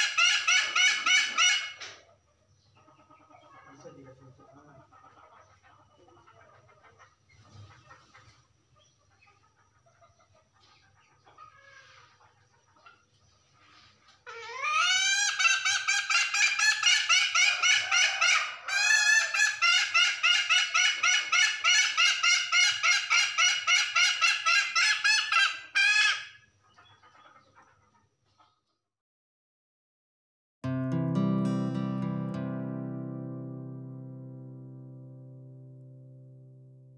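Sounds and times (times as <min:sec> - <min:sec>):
hen cackling: 0:00.0 - 0:08.4, 0:14.2 - 0:28.5.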